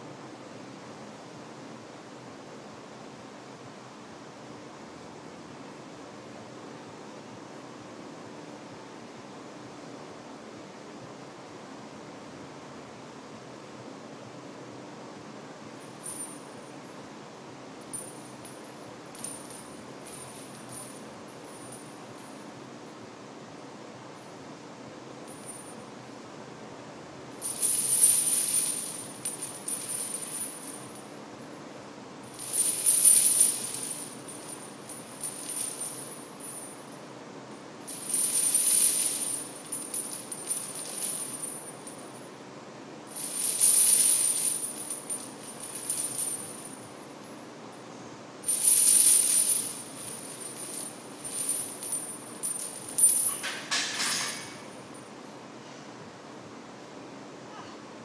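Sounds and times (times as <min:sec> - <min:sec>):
steel chains jangling and clinking: 0:17.9 - 0:22.0, 0:27.4 - 0:31.1, 0:32.3 - 0:37.0, 0:37.9 - 0:42.2, 0:43.1 - 0:47.0, 0:48.4 - 0:55.0
chains clattering as bar is racked: 0:18.0 - 0:22.1, 0:27.4 - 0:31.1, 0:32.3 - 0:36.8, 0:37.9 - 0:42.2, 0:43.1 - 0:46.9, 0:48.4 - 0:55.0.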